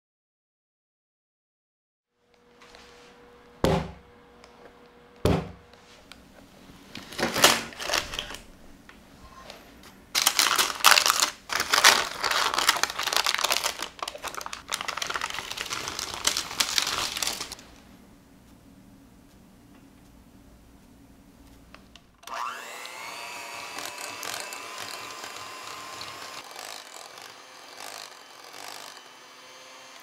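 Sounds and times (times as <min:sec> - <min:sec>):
sharp knocks: 0:03.6 - 0:04.0, 0:05.2 - 0:05.6
baking paper crinkling: 0:06.8 - 0:08.6, 0:10.1 - 0:17.8.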